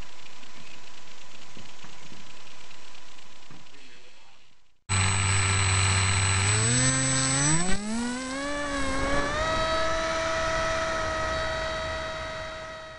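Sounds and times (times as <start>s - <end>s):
electric motor and propeller whine: 4.9s - 12.9s.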